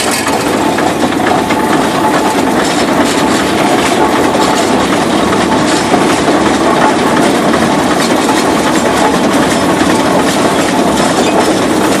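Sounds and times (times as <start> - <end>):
steam traction engine running: 0.0 - 12.0.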